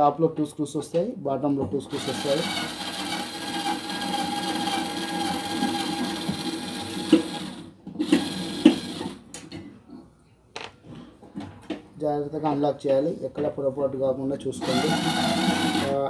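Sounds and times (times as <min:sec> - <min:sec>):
power screwdriver motor whine: 0:02.0 - 0:09.1, 0:14.6 - 0:16.0.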